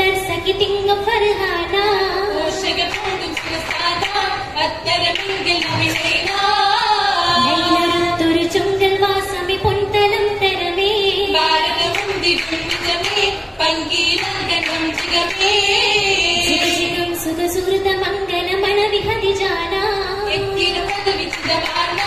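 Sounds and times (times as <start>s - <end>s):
group singing with women leading: 0.0s - 22.0s
sharp hand claps: 2.8s - 4.3s, 11.8s - 13.4s, 14.2s - 15.6s, 20.8s - 22.0s.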